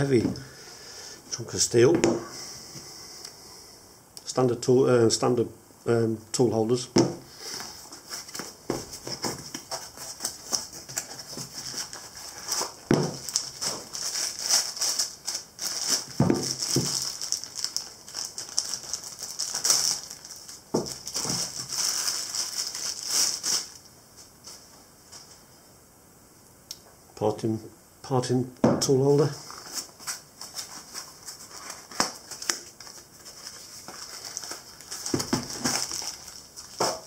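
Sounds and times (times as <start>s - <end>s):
plastic bag crinkling: 7.9s - 23.8s, 29.5s - 37.0s.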